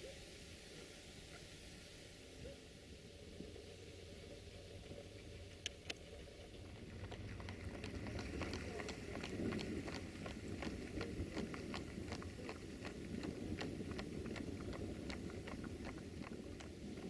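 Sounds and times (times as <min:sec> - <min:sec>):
steady low rumble: 0:00.0 - 0:17.0
horse hooves clopping on asphalt: 0:05.0 - 0:17.0.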